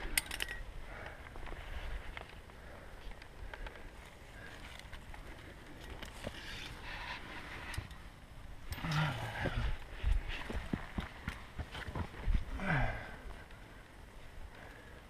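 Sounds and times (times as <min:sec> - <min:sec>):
climber clicks and scrapes on rock: 0:03.6 - 0:08.0
low grunt: 0:08.7 - 0:09.8.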